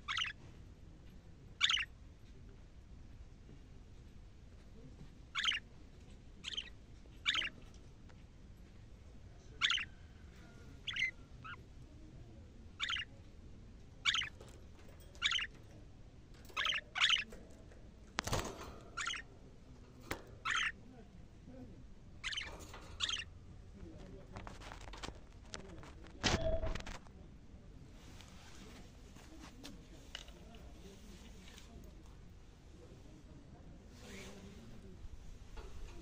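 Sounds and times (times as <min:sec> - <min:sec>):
budgerigars chirping: 0:00.0 - 0:00.3, 0:01.6 - 0:01.9, 0:05.4 - 0:05.6, 0:06.4 - 0:07.5, 0:09.6 - 0:09.9, 0:10.8 - 0:11.6, 0:12.8 - 0:13.1, 0:14.0 - 0:14.4, 0:15.2 - 0:15.6, 0:16.5 - 0:17.3, 0:19.0 - 0:19.3, 0:20.4 - 0:20.8, 0:22.2 - 0:23.3.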